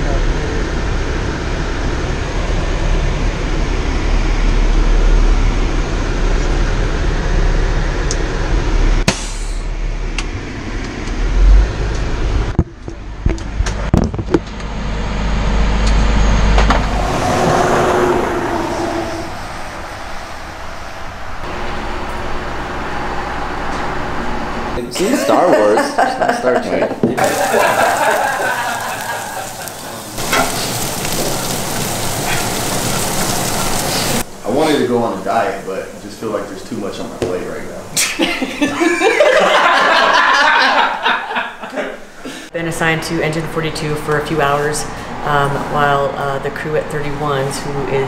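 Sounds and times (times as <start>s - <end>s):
diesel engine and road rumble: 0.0s - 24.9s.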